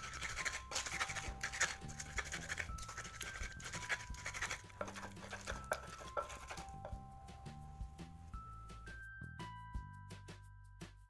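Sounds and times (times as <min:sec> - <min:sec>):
stone pestle grinding in mortar: 0:00.0 - 0:08.0.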